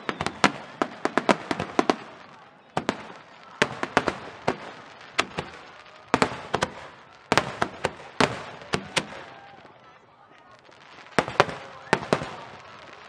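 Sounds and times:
firework shells bursting: 0.0s - 9.4s.

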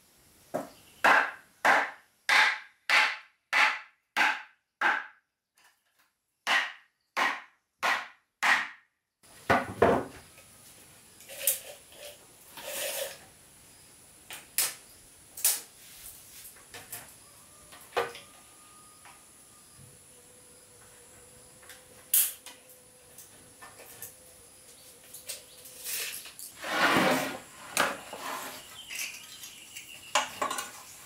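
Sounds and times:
tool striking wood: 0.6s - 5.2s, 6.4s - 8.9s
short scrape: 11.3s - 13.2s, 25.8s - 28.8s.

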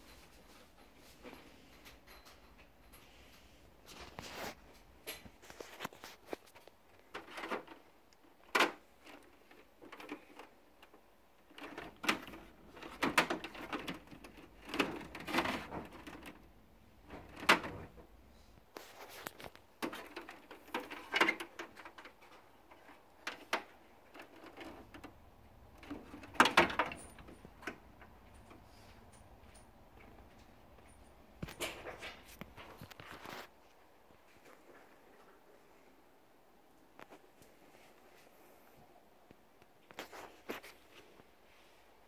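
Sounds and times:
plastic parts clicking and knocking: 5.0s - 18.1s, 19.2s - 28.6s.

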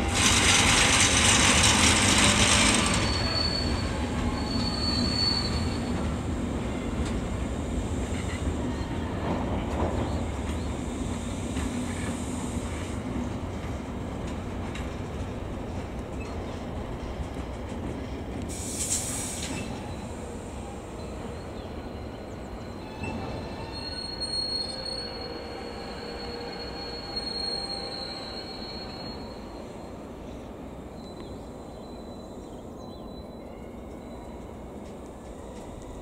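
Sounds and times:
high wheel squeal: 0.0s - 6.1s, 21.9s - 29.8s
train wheels rumbling on rails: 0.0s - 36.0s
high hiss: 18.5s - 21.0s.

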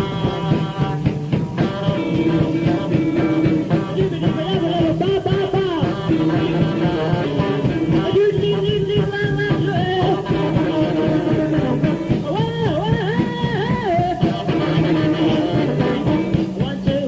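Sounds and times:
post-punk band playing live: 0.0s - 17.0s.

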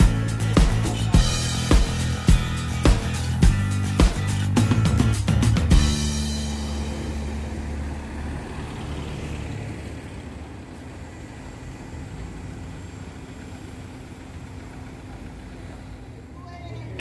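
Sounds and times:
street background noise: 0.0s - 17.0s
low engine-like hum: 5.6s - 17.0s.

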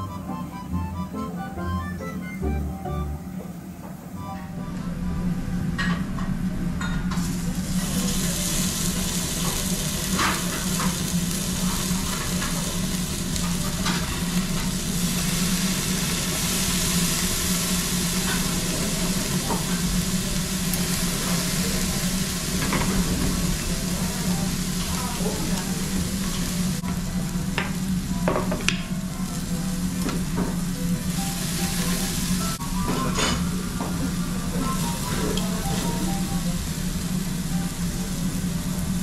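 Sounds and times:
meat sizzling on grill: 7.1s - 39.0s.

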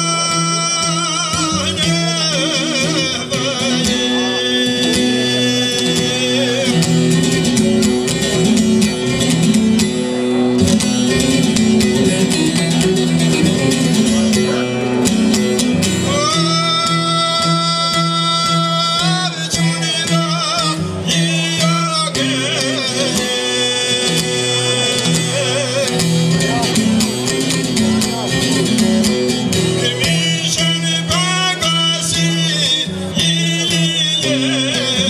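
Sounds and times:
man singing long wavering notes: 0.0s - 7.1s, 16.0s - 26.8s, 29.7s - 35.0s
plucked lute strummed rapidly: 0.0s - 35.0s.

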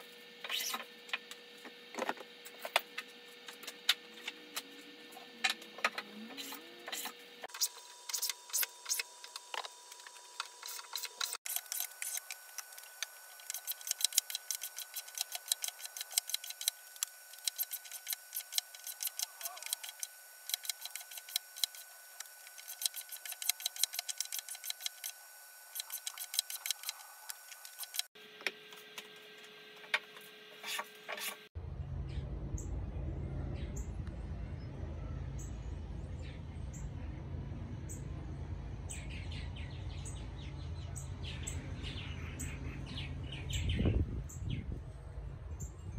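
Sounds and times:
birds chirping: 32.0s - 45.9s.

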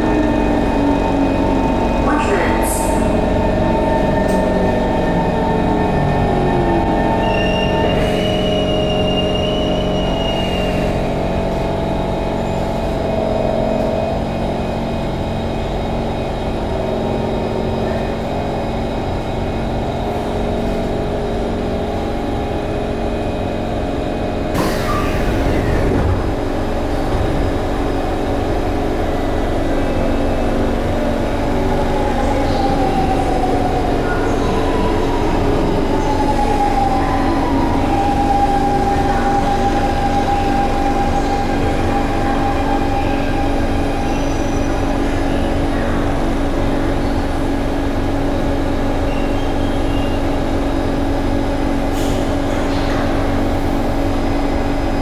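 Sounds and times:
train equipment hum: 0.0s - 55.0s
train doors opening: 24.5s - 29.2s, 51.8s - 53.3s.

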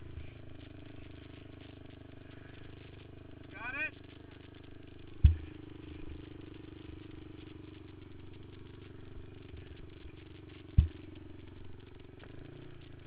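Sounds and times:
quad engine idling: 0.0s - 13.0s
sharp thump: 5.2s - 5.6s, 10.8s - 11.0s.

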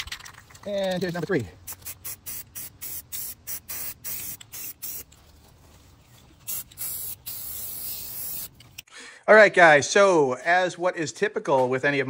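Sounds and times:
aerosol spray can spraying: 1.6s - 5.1s, 6.5s - 8.6s.

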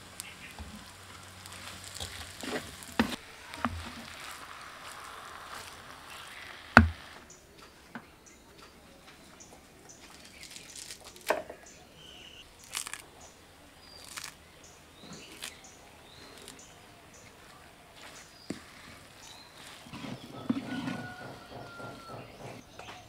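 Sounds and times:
leaves rustling: 0.0s - 21.8s
herb stems snapping: 0.2s - 7.7s, 10.0s - 11.8s, 12.5s - 14.4s, 15.0s - 17.3s
faint bird chirps: 11.6s - 23.0s.

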